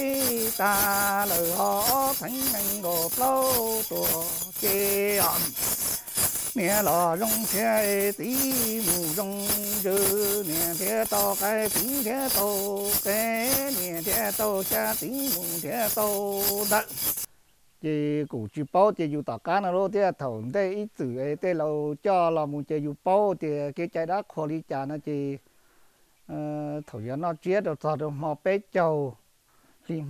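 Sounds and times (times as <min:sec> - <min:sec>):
man chanting prayer: 0:00.0 - 0:05.6, 0:06.6 - 0:16.9
metal ring rattle jingling: 0:00.0 - 0:17.3
steady held tone: 0:00.0 - 0:17.3.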